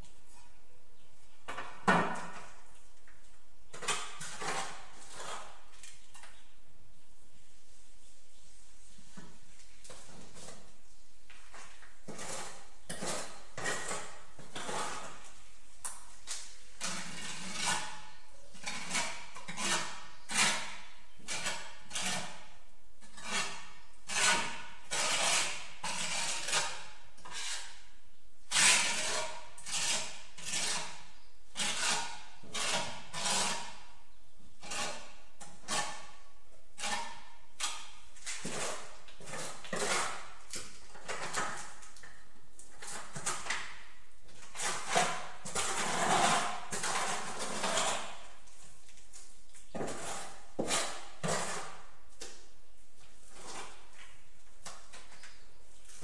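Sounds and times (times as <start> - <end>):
steel trowel scraping mortar: 3.8 - 5.7, 11.6 - 15.5, 16.3 - 27.9, 28.5 - 34.0, 34.6 - 41.9, 42.7 - 48.5, 49.7 - 52.0, 53.3 - 54.2.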